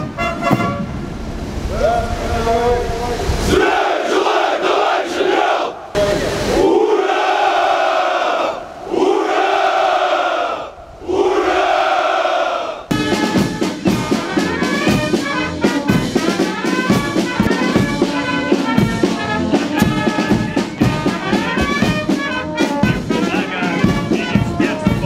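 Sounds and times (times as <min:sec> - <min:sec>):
marching snare drums: 0:00.0 - 0:01.0, 0:12.9 - 0:25.0
brass band playing a march: 0:00.0 - 0:01.1, 0:12.9 - 0:25.0.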